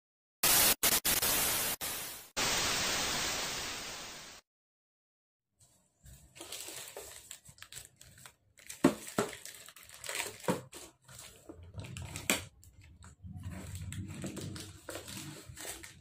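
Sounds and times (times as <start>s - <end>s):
plastic mailer bag crinkling: 6.3s - 12.9s, 13.5s - 16.0s.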